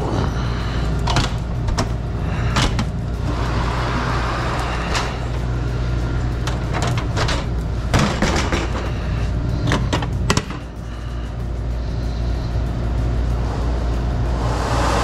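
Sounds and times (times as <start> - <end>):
low machine hum: 0.0 - 15.0
metal clattering and knocks: 6.4 - 9.0.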